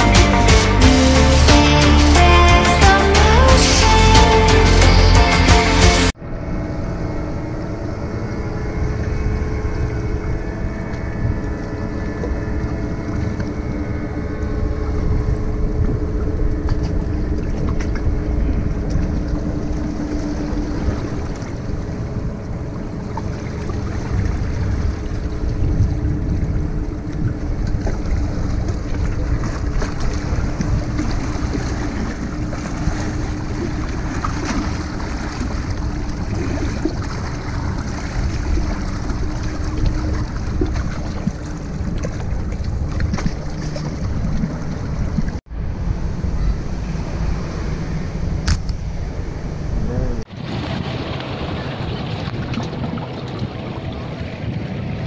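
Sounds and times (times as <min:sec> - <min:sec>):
boat engine drone: 0:00.0 - 0:55.0
wind buffeting microphone: 0:06.4 - 0:55.0
waves washing against rocks: 0:50.3 - 0:55.0.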